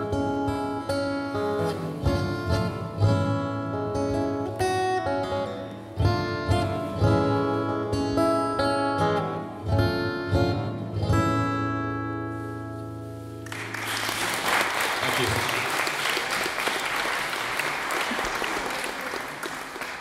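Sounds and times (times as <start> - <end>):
acoustic guitar chords: 0.0 - 14.4.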